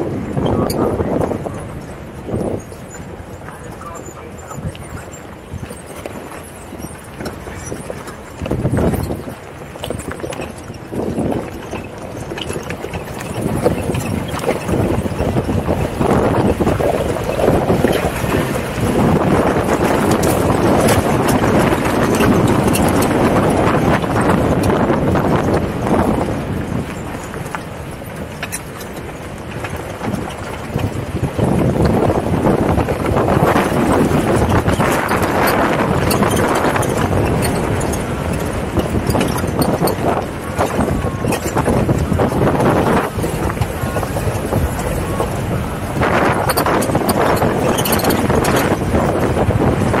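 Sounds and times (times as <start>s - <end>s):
vehicle engine and tyre noise: 0.0s - 50.0s
wind buffeting microphone: 0.0s - 50.0s
knocks and rattles: 0.4s - 50.0s.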